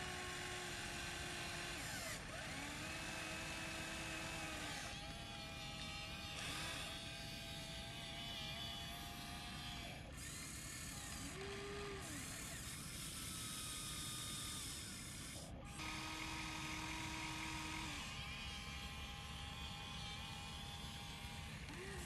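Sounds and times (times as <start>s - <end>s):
small electric motors whining: 0.0s - 22.0s.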